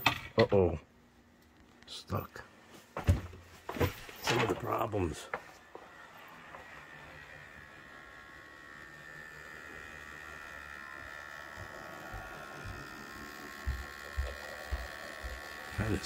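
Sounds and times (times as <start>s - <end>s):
model train motor whining hum: 3.8s - 16.0s.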